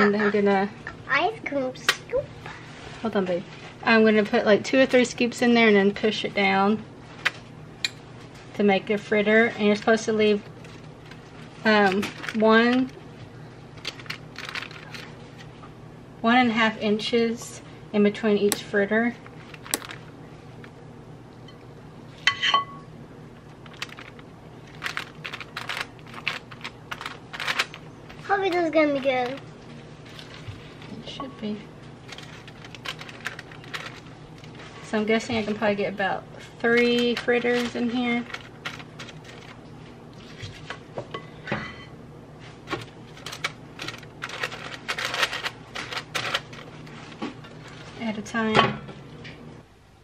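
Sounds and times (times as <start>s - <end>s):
wax paper crinkling: 9.6s - 13.0s, 13.7s - 15.5s, 19.2s - 20.8s, 23.4s - 31.1s, 31.8s - 35.8s, 36.4s - 40.8s, 42.4s - 48.1s.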